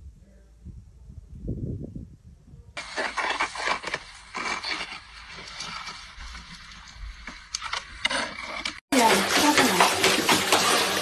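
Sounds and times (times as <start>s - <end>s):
snow shovel scraping snow: 2.8s - 11.0s.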